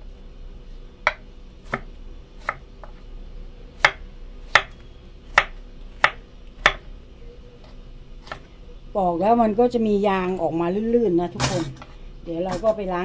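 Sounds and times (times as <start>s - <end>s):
knife chopping on plastic board: 1.0s - 3.0s, 3.8s - 6.9s, 7.6s - 8.5s.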